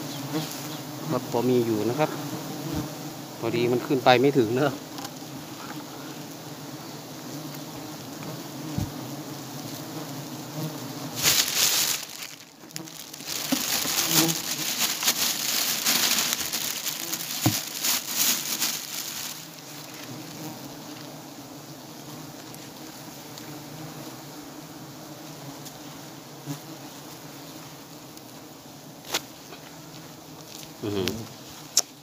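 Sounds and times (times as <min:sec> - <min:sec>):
bees buzzing: 0:00.0 - 0:32.0
rustling noise bursts: 0:11.1 - 0:20.4.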